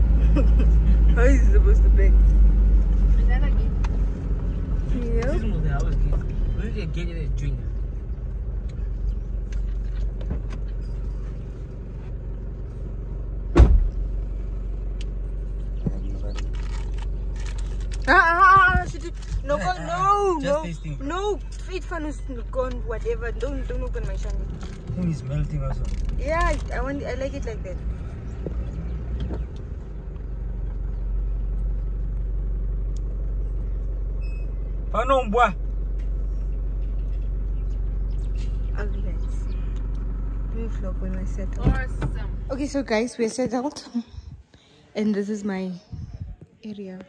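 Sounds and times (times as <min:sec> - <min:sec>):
car engine humming: 0:00.0 - 0:47.0
sharp thump: 0:13.5 - 0:14.0.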